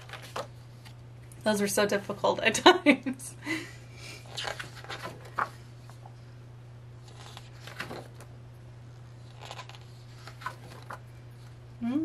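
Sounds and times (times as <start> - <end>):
paper pages rustling: 0.0 - 1.0, 4.2 - 6.2, 7.0 - 8.3, 9.2 - 11.6.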